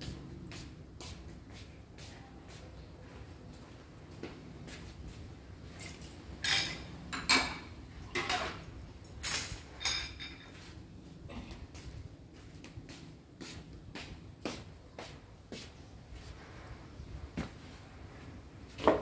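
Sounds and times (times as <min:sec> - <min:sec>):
cooking pots and utensils clattering: 0:05.8 - 0:10.8.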